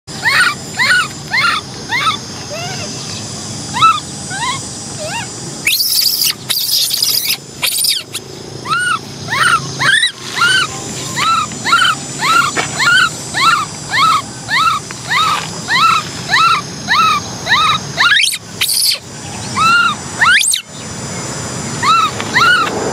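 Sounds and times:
baby monkey squealing calls: 0.1s - 20.8s, 21.8s - 22.7s.

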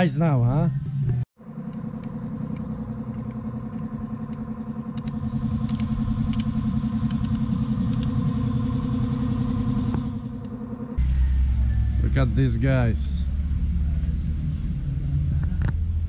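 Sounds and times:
engine running: 0.7s - 16.0s.

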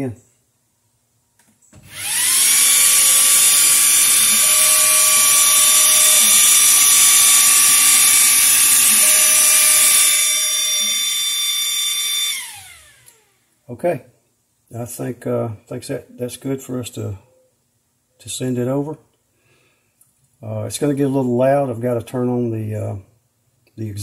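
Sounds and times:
stepper motors whining: 1.8s - 13.4s
lower motor tone: 1.9s - 13.3s.

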